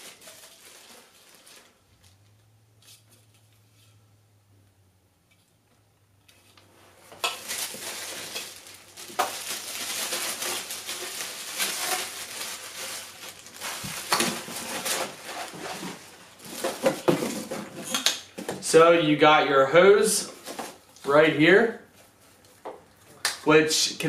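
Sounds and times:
plastic bags crinkling: 0.0s - 2.3s, 7.1s - 18.0s.

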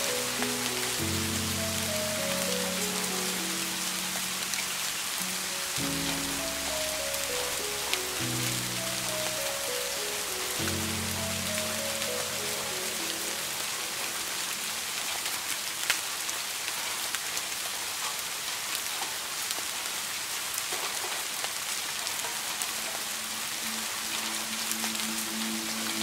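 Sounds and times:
soft music: 0.0s - 15.4s, 22.4s - 26.0s
raindrops ticking: 0.0s - 16.1s
steady rain: 0.0s - 26.0s.

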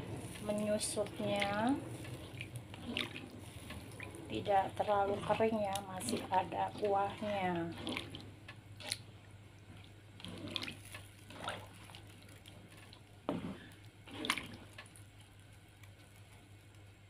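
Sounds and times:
spatula swishing curry in pan: 0.0s - 8.3s, 9.6s - 14.8s
low steady hum: 0.0s - 17.0s.

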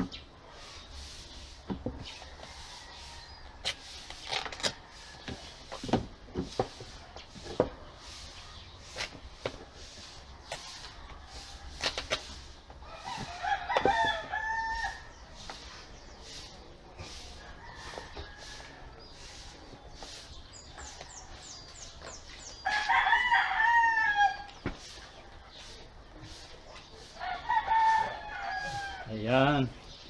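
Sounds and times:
rooster crowing: 12.8s - 15.1s, 17.4s - 18.8s, 22.6s - 24.5s, 27.2s - 29.1s.

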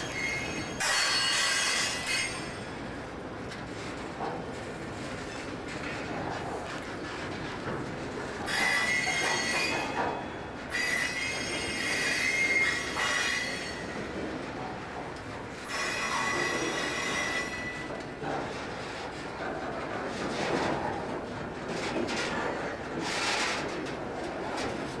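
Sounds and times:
train wheels squealing: 0.0s - 2.8s, 8.5s - 14.2s, 15.6s - 18.0s
low rumble of moving train: 0.0s - 25.0s.

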